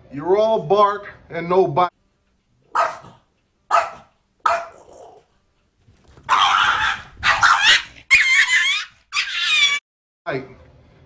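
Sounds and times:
small dog barking: 2.7 - 5.2, 6.3 - 8.6.

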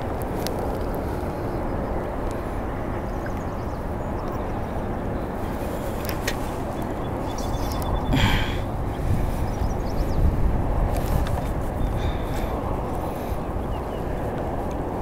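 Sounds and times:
wind rumble on microphone: 0.0 - 15.0.

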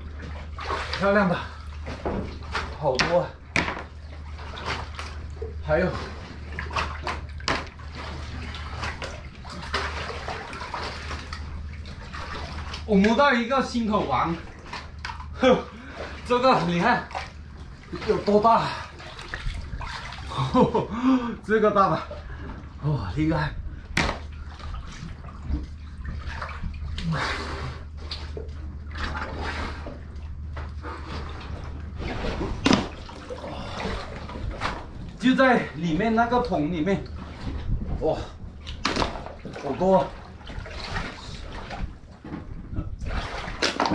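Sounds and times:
sharp splashes: 0.0 - 13.2, 14.1 - 20.8, 23.9 - 25.4, 32.0 - 35.6, 38.6 - 42.0, 43.1 - 43.9
seawater sloshing and splashing: 0.0 - 43.9
steady low hum: 0.0 - 43.9
water lapping: 0.0 - 43.9.

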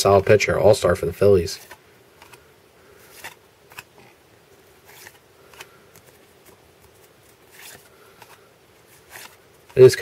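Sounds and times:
paper cards swishing: 3.0 - 4.1, 4.8 - 10.0.

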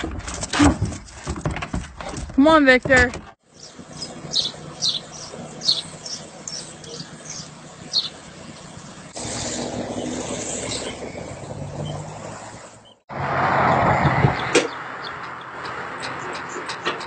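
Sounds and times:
traffic noise: 2.8 - 17.0
high bird chirps: 3.5 - 8.8.

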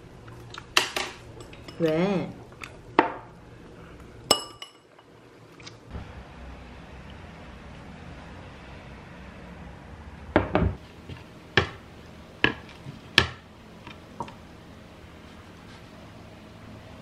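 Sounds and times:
faint room hum: 0.0 - 17.0
dishes clinking on table: 4.3 - 5.1.

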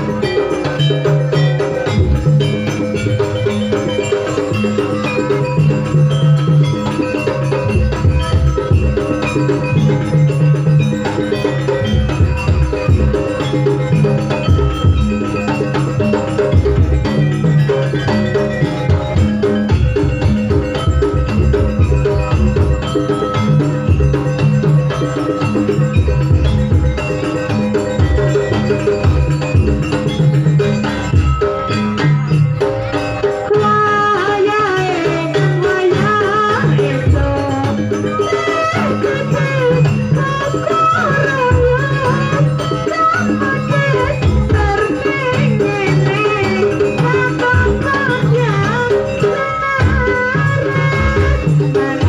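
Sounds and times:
hand drums: 0.0 - 52.0
metal mallet percussion: 0.0 - 52.0.

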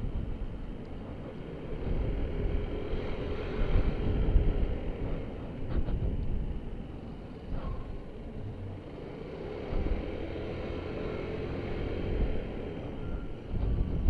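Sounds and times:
scooter engine rumble: 0.0 - 14.0
wind noise: 0.0 - 14.0.

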